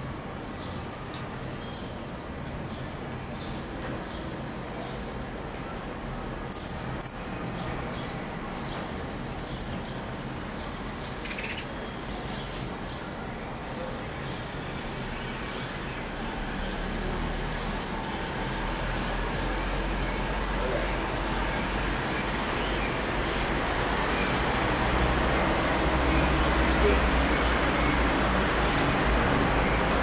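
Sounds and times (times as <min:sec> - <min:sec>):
finches chirping: 0:06.5 - 0:07.4, 0:11.0 - 0:11.8, 0:12.9 - 0:29.9.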